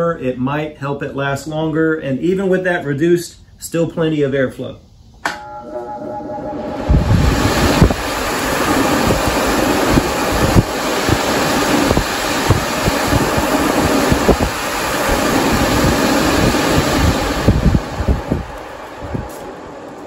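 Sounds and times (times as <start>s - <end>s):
blower fan air rush: 4.9s - 20.0s
low buffeting: 4.9s - 20.0s.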